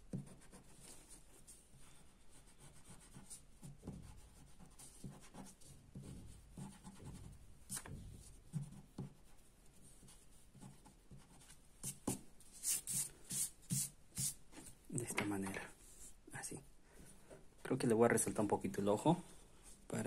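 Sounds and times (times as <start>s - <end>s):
eraser rubbing on paper: 2.3s - 14.4s.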